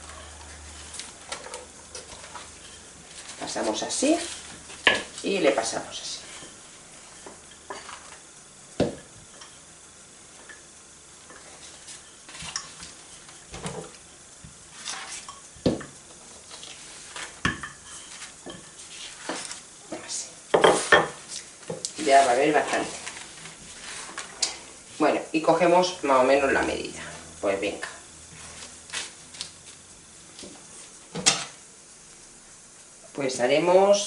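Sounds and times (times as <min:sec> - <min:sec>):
rolling pin rolling over pastry: 0:11.2 - 0:19.7, 0:20.5 - 0:24.4, 0:28.4 - 0:29.8.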